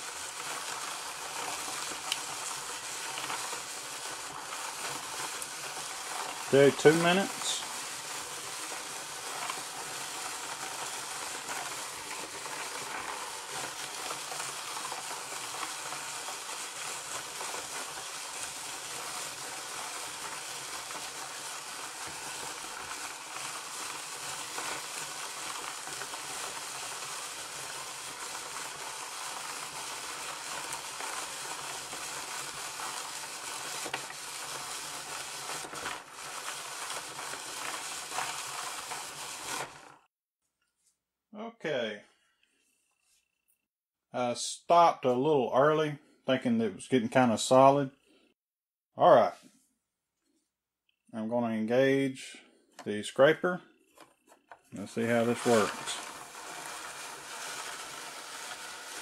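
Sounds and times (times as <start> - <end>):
hand-cranked machine whirring: 0.0 - 40.1, 53.9 - 59.0.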